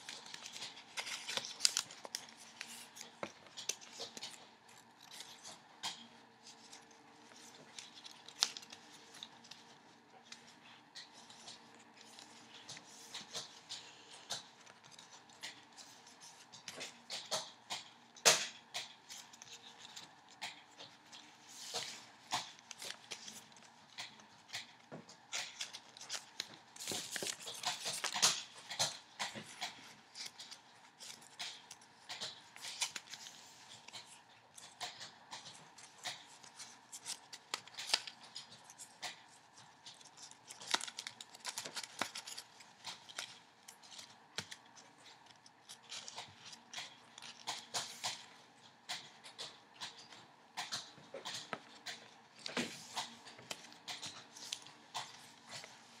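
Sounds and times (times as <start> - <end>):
paper snapping: 0.0 - 6.1, 6.7 - 21.0, 21.7 - 48.2
paper rustling and crinkling: 0.0 - 56.0.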